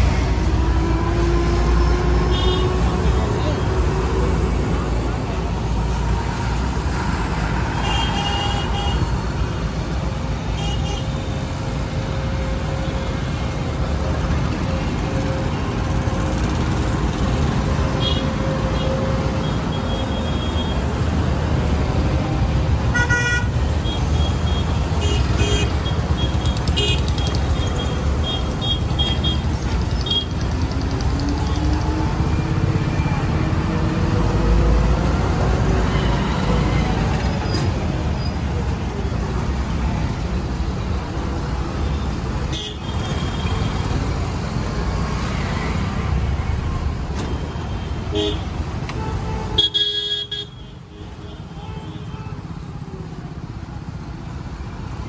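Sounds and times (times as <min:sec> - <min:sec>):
diesel engines rumbling: 0:00.0 - 0:55.0
vehicle horns tooting: 0:22.9 - 0:29.5, 0:47.4 - 0:52.5.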